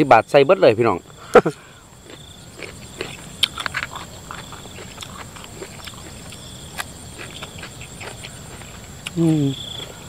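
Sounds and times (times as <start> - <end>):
crickets trilling: 0.0 - 10.0
wet chewing and lip smacking: 2.0 - 10.0.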